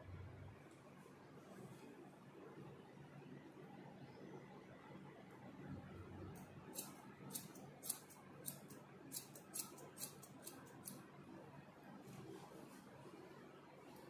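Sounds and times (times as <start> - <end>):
scissors snipping hair: 6.7 - 11.0.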